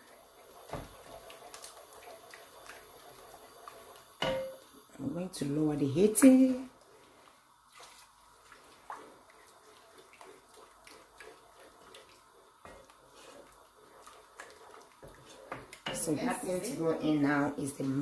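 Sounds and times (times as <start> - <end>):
wooden spoon stirring sauce in pot: 0.0 - 18.0.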